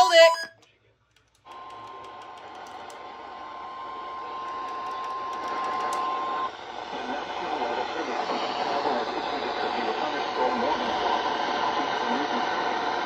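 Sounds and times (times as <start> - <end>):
radio warning alarm tone: 0.0 - 0.5.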